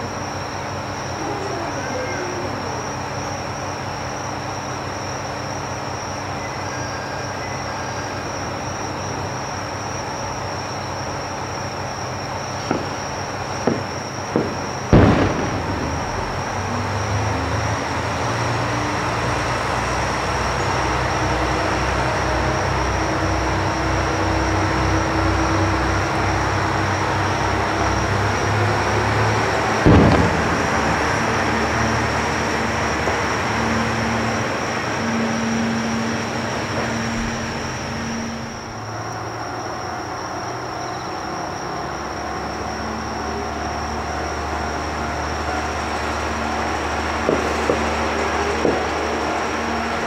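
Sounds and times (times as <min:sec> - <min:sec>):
diesel railcar engine throb: 0:00.0 - 0:50.0
sharp echoing bangs: 0:13.7 - 0:17.4, 0:29.8 - 0:35.1.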